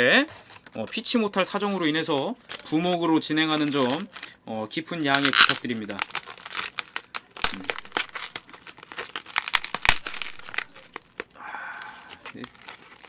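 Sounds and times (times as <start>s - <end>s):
plastic wrap crinkling: 0.6s - 13.0s
plastic wrap snapping: 3.4s - 4.4s, 5.0s - 13.0s.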